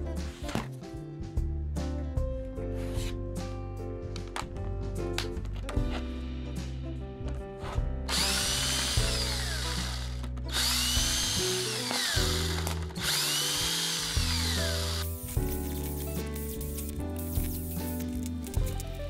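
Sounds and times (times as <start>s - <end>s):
background music: 0.0s - 19.0s
screw gun motor whine: 8.1s - 15.1s.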